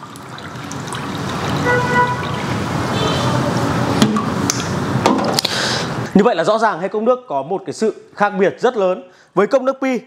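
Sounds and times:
water pouring into glass: 0.0s - 3.0s.

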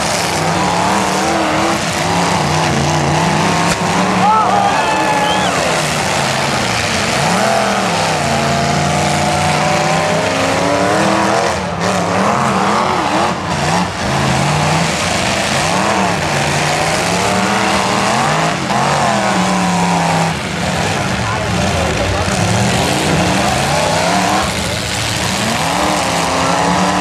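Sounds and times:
steady roar: 0.0s - 27.0s
truck engines revving hard: 0.0s - 27.0s.

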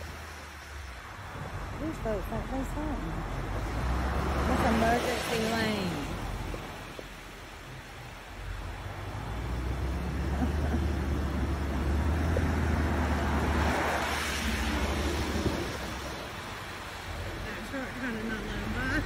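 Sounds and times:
car driving past: 2.9s - 7.0s, 8.5s - 19.0s.

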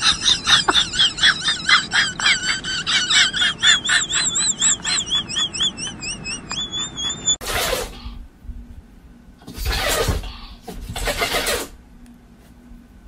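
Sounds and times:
dog whining: 2.9s - 8.2s.

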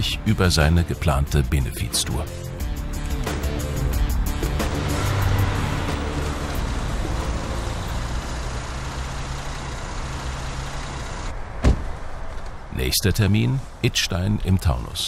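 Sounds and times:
vehicle passing with tyre noise: 4.2s - 13.9s.

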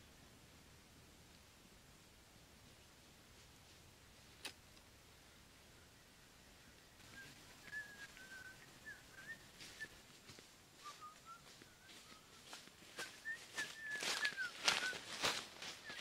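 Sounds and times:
whistle-like chirps: 7.1s - 10.0s, 13.0s - 16.0s
footsteps through leafy undergrowth: 9.5s - 16.0s.

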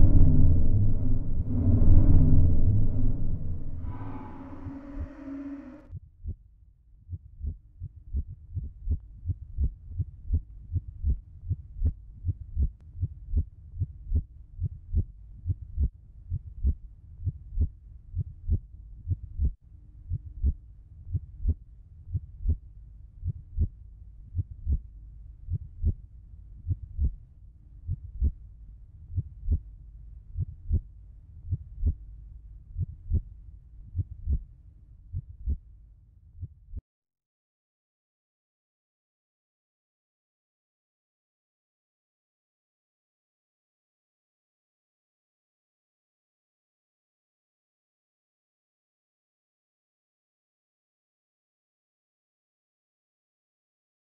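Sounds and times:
faint steady hum: 0.0s - 5.8s
heartbeat thumps: 7.1s - 12.7s, 34.0s - 34.4s.

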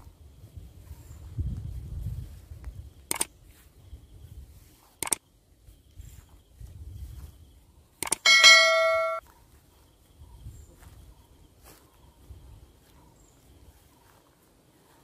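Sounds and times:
notification bell chime: 8.3s - 9.2s.

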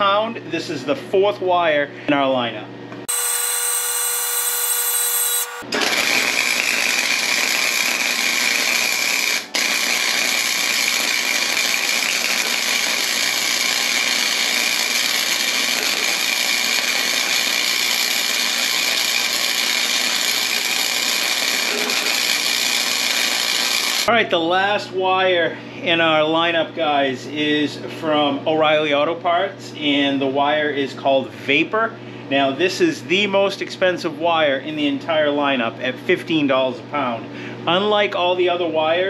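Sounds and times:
welder hum: 3.0s - 24.1s
welding arc crackling: 3.1s - 24.1s.

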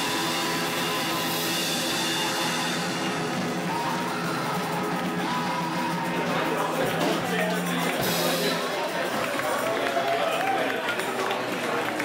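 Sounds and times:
distorted electric guitars: 0.0s - 9.0s
drum kit with cymbals: 0.0s - 9.7s.

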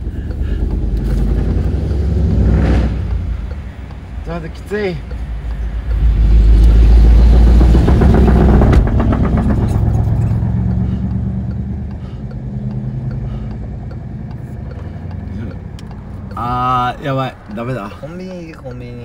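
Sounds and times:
car engine rumble: 0.0s - 19.0s.

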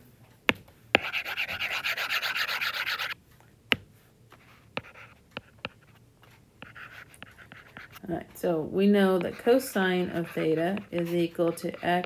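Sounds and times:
stylus tapping and scratching: 0.5s - 12.0s
stylus scrubbing on glass screen: 1.0s - 3.2s, 6.6s - 12.0s.

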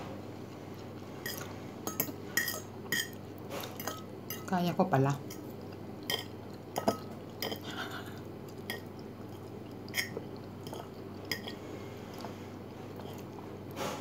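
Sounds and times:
steady low hum: 0.0s - 14.0s
chewing: 5.2s - 13.6s.

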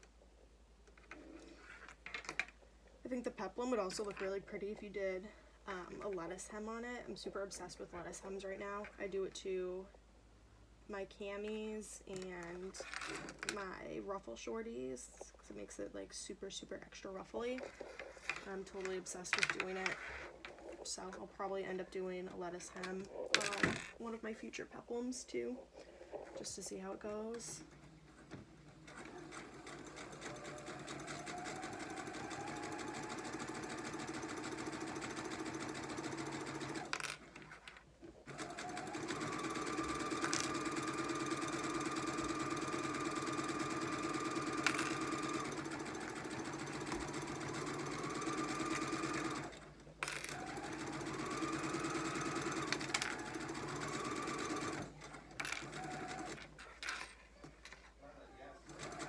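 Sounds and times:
sewing machine motor whine: 28.7s - 37.0s, 38.3s - 49.6s, 50.3s - 56.5s, 58.6s - 59.0s.

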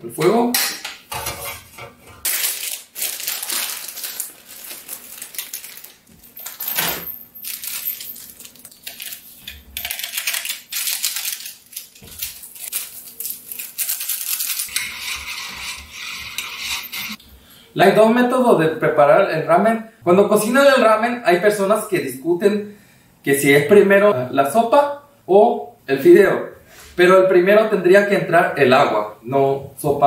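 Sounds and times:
plastic sachets crinkling and tearing: 2.2s - 6.6s, 7.4s - 14.8s.

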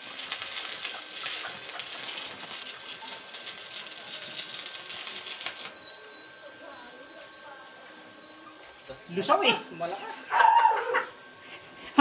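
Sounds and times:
welding arc crackling and hissing: 0.0s - 7.4s.

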